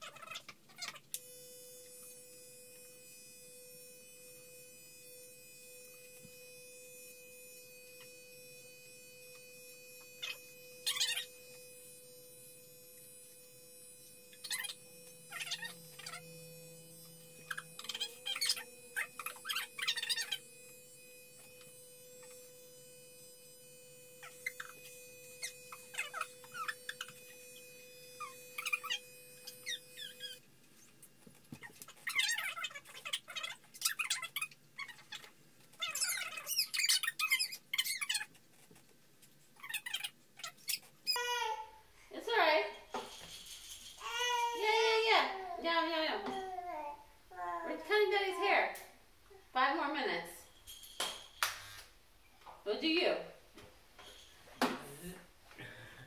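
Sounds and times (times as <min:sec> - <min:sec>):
electric hair clippers humming: 0:00.0 - 0:38.4, 0:39.7 - 0:50.3, 0:51.0 - 0:53.7, 0:54.6 - 0:56.0
clipper blades cutting hair: 0:00.1 - 0:38.4, 0:47.6 - 0:49.0
baby squealing and cooing: 0:39.6 - 0:41.8, 0:44.0 - 0:45.6.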